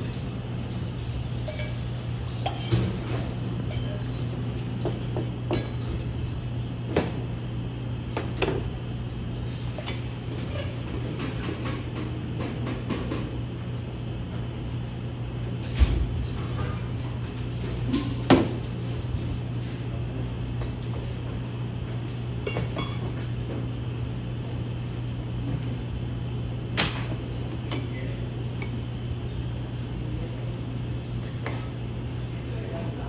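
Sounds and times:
steady low hum: 0.0s - 33.0s
clinks of cups plates and utensils: 1.4s - 4.2s, 22.4s - 23.3s.

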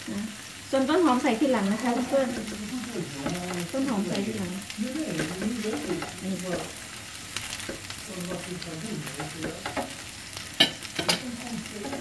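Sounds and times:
noodles sizzling in a frying pan: 0.0s - 12.0s
utensils scraping a pan: 1.6s - 4.5s, 5.1s - 12.0s
utensils knocking against a pan: 3.2s - 4.1s, 5.1s - 6.8s, 7.6s - 10.0s, 10.6s - 12.0s.

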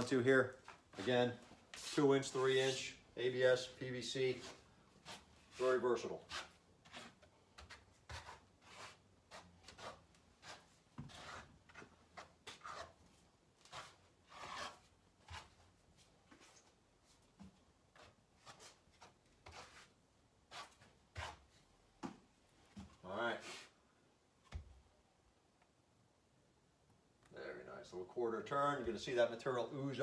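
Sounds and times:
trowel scraping mortar: 4.4s - 13.0s, 13.6s - 15.6s.

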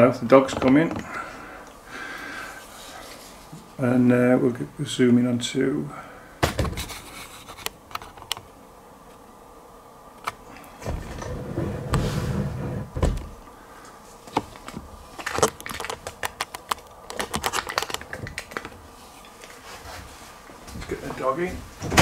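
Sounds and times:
soft rustling: 2.5s - 3.8s, 18.8s - 21.8s.

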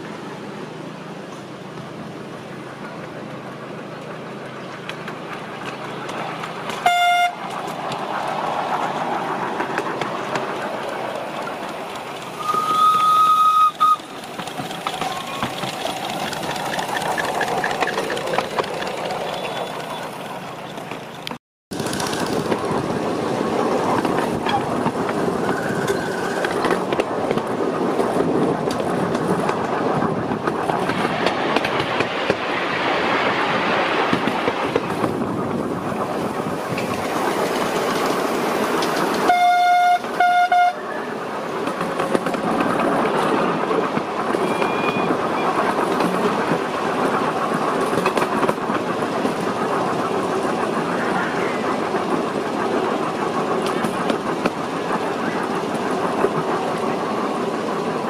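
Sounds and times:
train running on rails: 0.0s - 58.0s
locomotive tooting: 11.4s - 22.8s, 24.3s - 26.9s, 39.0s - 41.2s, 44.3s - 45.9s.

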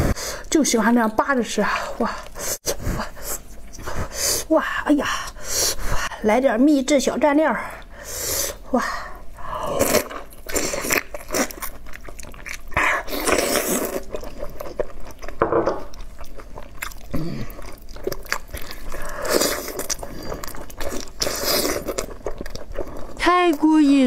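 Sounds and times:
person biting and chewing meat: 9.7s - 23.2s.

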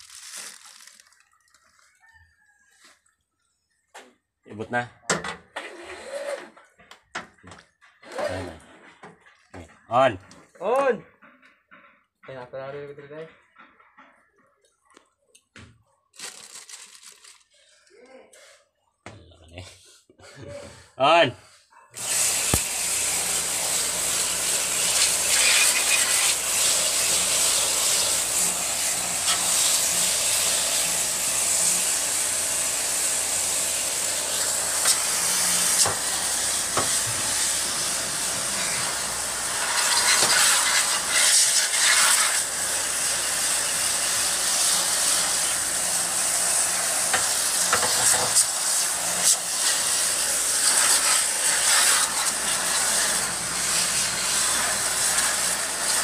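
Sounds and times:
water jet hissing: 22.0s - 56.0s.

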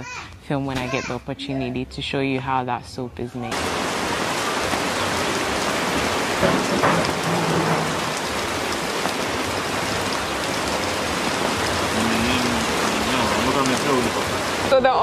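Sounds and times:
rain on leaves and wet ground: 3.5s - 15.0s.

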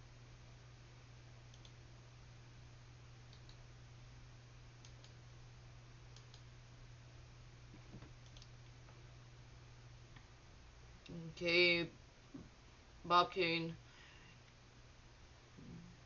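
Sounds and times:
low electrical hum: 0.0s - 16.0s
computer mouse clicks: 1.5s - 1.8s, 3.3s - 3.6s, 4.8s - 5.2s, 6.2s - 6.5s, 8.0s - 8.6s.

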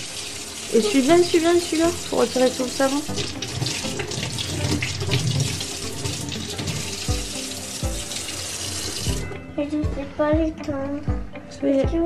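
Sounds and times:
tap water splashing into sink: 0.0s - 9.2s.

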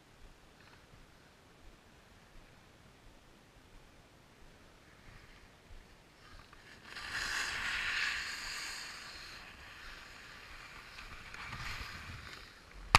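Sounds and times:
skis scraping over snow: 4.8s - 12.9s.

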